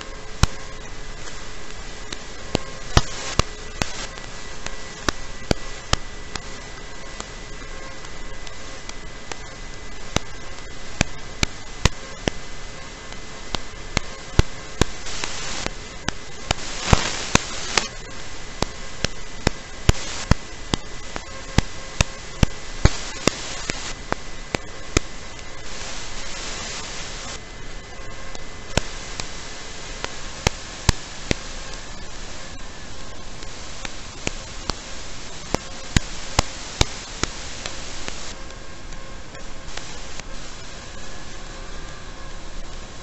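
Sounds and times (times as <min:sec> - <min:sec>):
static hiss: 0:00.0 - 0:43.0
sharp clicks: 0:00.4 - 0:06.6, 0:13.1 - 0:27.4, 0:28.0 - 0:40.6.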